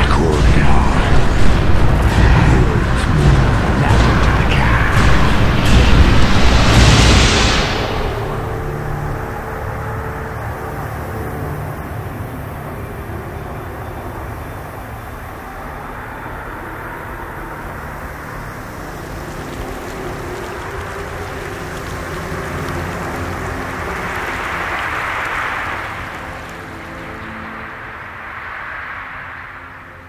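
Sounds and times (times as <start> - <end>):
whoosh: 0.0 - 11.0
sustained low notes: 0.0 - 28.0
low rumbling rush: 0.0 - 30.0.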